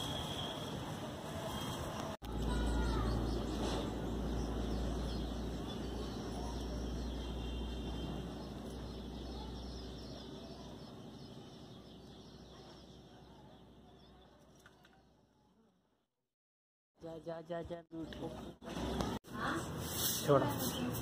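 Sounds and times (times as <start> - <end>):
birds chirping faintly: 1.6 - 15.5.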